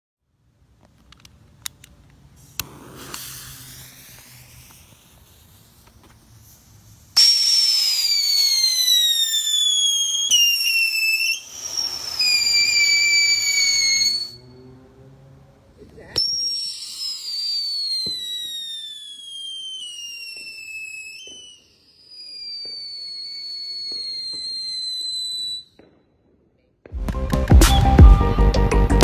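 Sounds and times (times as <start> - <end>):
faint hiss: 0.4 - 14.1
firework whistling: 2.3 - 14.6, 16.2 - 26.0.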